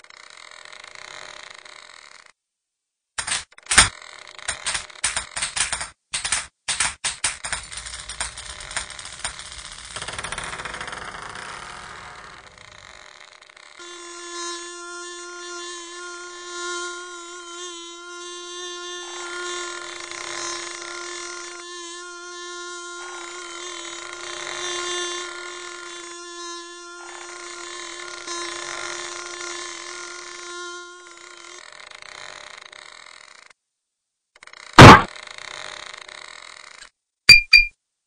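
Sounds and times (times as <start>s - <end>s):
bee wings buzzing: 11.8s - 33.5s.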